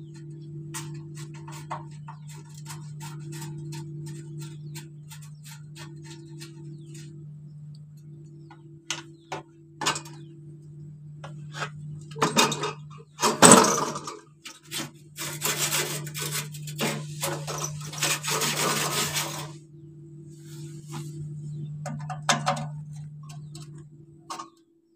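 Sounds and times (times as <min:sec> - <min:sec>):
steady low hum: 0:00.0 - 0:24.9
metal rubbing and scraping: 0:00.1 - 0:07.2, 0:11.3 - 0:19.7, 0:20.3 - 0:24.6
metal clatter: 0:11.6 - 0:19.6.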